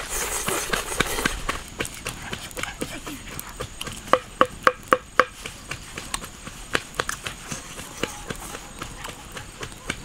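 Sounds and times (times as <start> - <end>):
sharp hollow knocks: 3.8 - 5.4.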